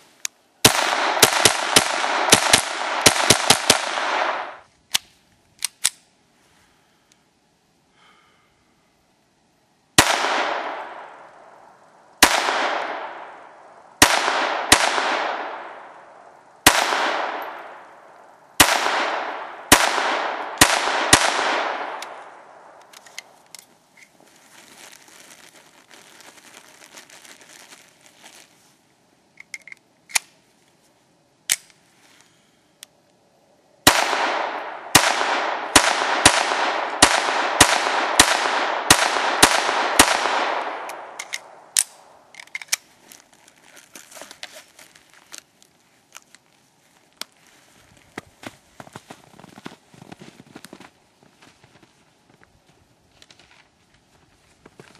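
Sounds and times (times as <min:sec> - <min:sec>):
pistol shots with echo: 0:00.6 - 0:04.6, 0:10.0 - 0:11.6, 0:12.2 - 0:22.8, 0:33.8 - 0:42.2.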